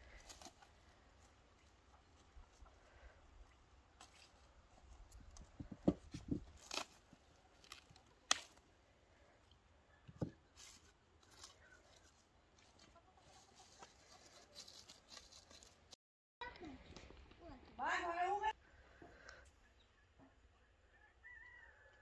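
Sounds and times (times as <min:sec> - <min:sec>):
chickens clucking: 0:12.6 - 0:14.6.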